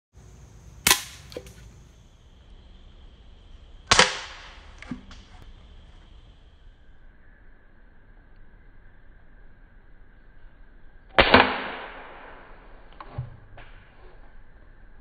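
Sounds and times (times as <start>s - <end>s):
bb rifle shot crack: 0.8s - 1.6s, 3.9s - 5.0s, 11.2s - 12.4s.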